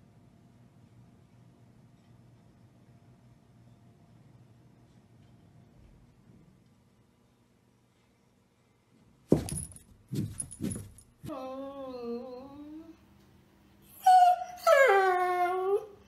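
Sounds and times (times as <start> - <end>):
dog whining: 13.9 - 16.0.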